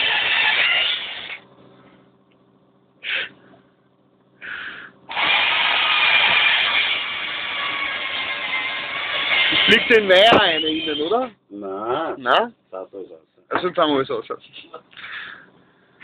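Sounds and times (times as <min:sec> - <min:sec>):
electric drill running: 0:00.0 - 0:01.4, 0:05.1 - 0:10.8.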